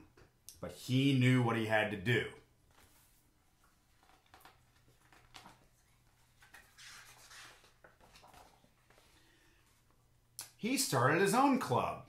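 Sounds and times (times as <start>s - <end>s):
book page turning: 2.7s - 9.2s.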